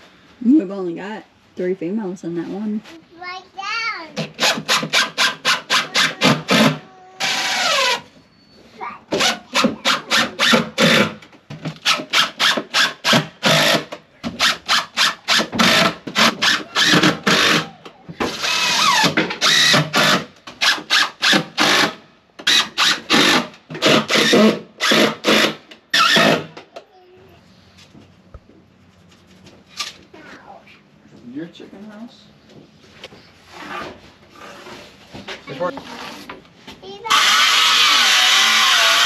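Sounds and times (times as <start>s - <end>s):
cordless drill driving screws: 4.2s - 8.1s, 9.2s - 11.2s, 11.8s - 26.6s, 37.1s - 39.0s.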